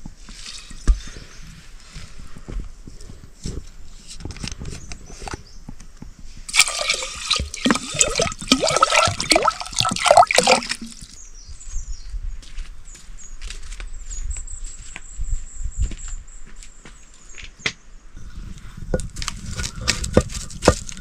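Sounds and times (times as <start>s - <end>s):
water bubbling and gurgling: 6.5s - 11.2s
water splashing in a pot: 6.5s - 11.2s.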